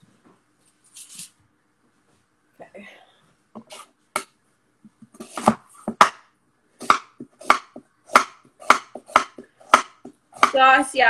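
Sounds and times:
knife chopping on wooden board: 0:05.1 - 0:06.2, 0:06.8 - 0:10.6.

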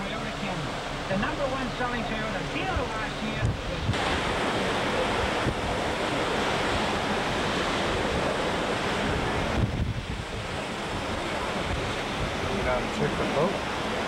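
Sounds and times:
strong wind rushing: 0:00.0 - 0:14.0
waves breaking: 0:00.0 - 0:14.0
wind buffeting microphone: 0:00.0 - 0:14.0.

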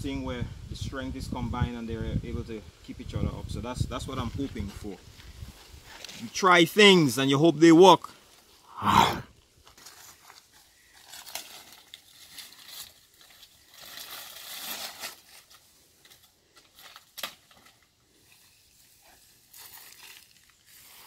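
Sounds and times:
leaves and stems rustling: 0:04.0 - 0:07.3, 0:09.5 - 0:21.0.

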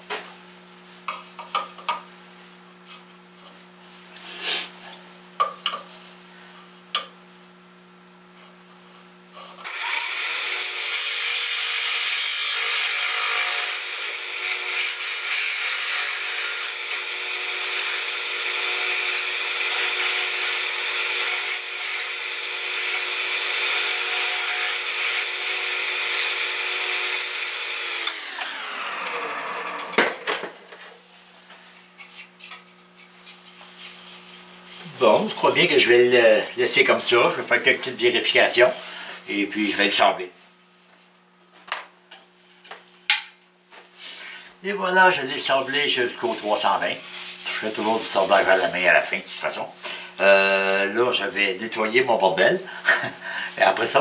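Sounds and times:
wood lathe running: 0:09.7 - 0:29.9
lathe winding down: 0:27.7 - 0:30.0.

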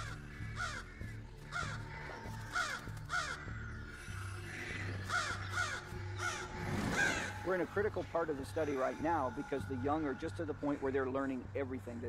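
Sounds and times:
crows cawing harshly: 0:00.0 - 0:07.6
low background music: 0:00.0 - 0:12.0.

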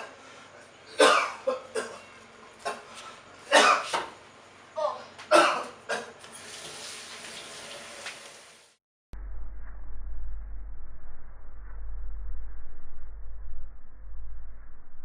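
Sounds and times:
man coughing hard: 0:01.0 - 0:02.9, 0:03.5 - 0:04.0, 0:05.3 - 0:06.1.

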